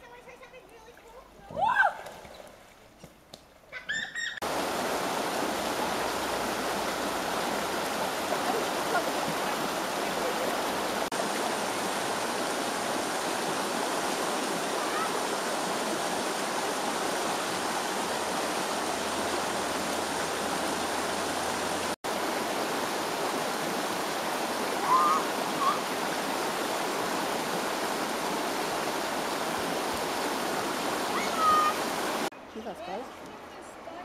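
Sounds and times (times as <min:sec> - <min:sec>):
water rushing over rocks: 0:04.4 - 0:32.3
brief high calls: 0:24.8 - 0:25.8.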